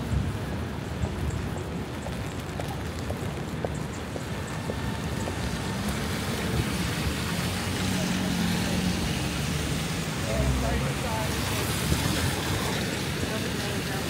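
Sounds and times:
tyres on wet pavement: 0.0s - 14.0s.

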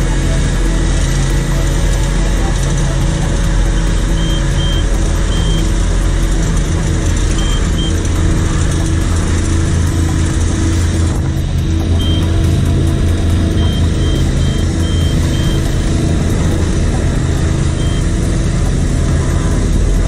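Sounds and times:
asphalt paver engine running: 0.0s - 20.0s
short high beeps: 12.0s - 12.3s, 17.8s - 18.1s.

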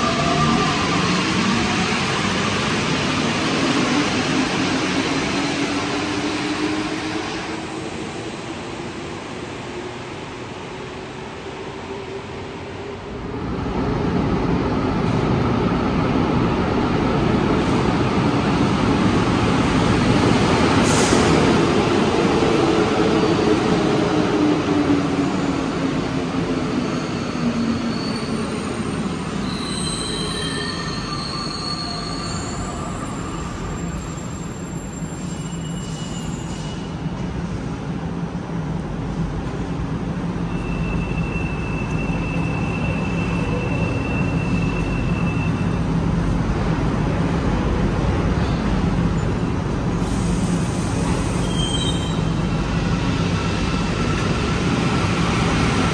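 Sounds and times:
train brakes squealing: 26.6s - 37.2s, 40.4s - 45.9s, 50.0s - 52.6s.

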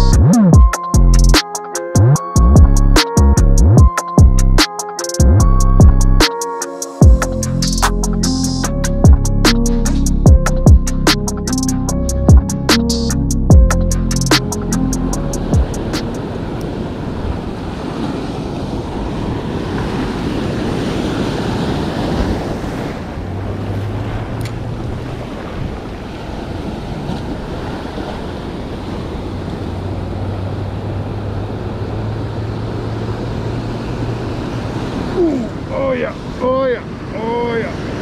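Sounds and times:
surf breaking on beach: 15.3s - 38.0s
wind buffeting microphone: 15.4s - 35.8s.

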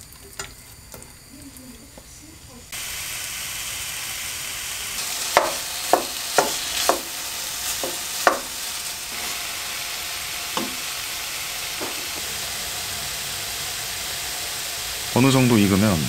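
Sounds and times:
chicken sizzling in a frying pan: 2.7s - 16.0s
wooden spatula knocking on pan: 5.3s - 7.2s, 7.8s - 8.6s, 10.6s - 10.8s.

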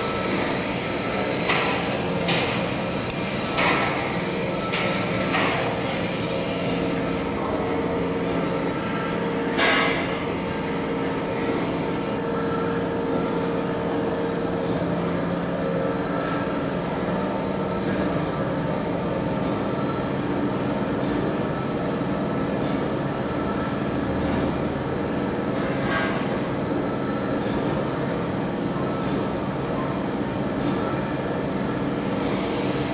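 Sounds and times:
heavy lathe drone: 0.0s - 20.3s.

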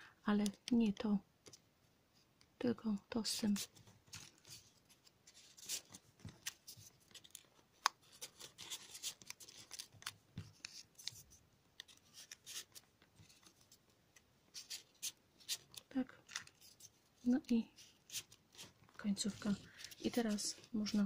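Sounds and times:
paper crinkling and clicking: 3.4s - 13.8s, 14.5s - 21.0s.

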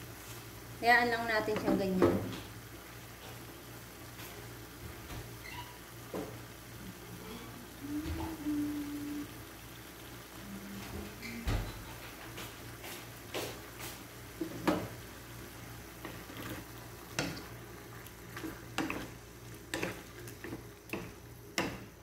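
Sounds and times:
faint sizzling: 0.0s - 22.0s
low steady hum: 6.7s - 12.3s
spatula tapping wok: 16.0s - 17.6s, 18.2s - 22.0s.

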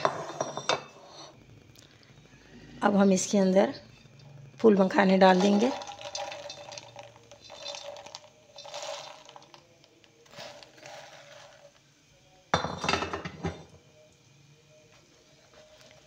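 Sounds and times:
spatula scraping pan: 10.3s - 11.7s.

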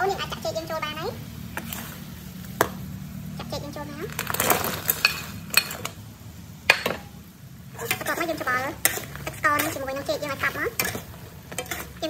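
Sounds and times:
metal spatula scraping in wok: 1.4s - 2.7s, 4.1s - 6.0s, 7.7s - 12.0s.

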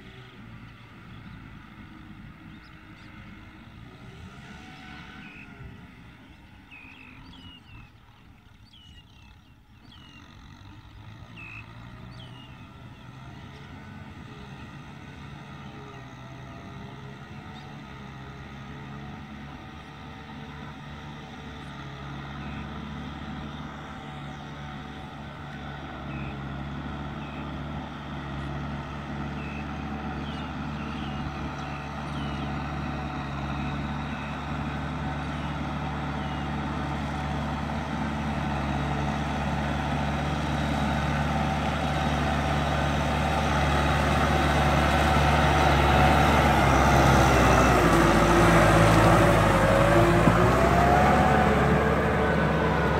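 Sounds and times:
tractor diesel engine running: 0.0s - 52.9s.

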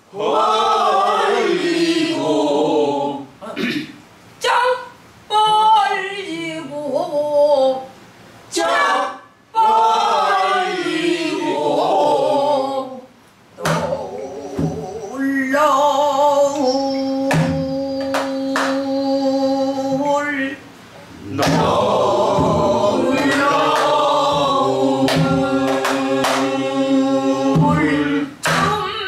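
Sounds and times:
woman singing with vibrato: 4.4s - 10.6s, 12.3s - 20.6s, 21.2s - 29.0s
barrel drum strokes: 21.3s - 26.5s, 27.5s - 28.7s.

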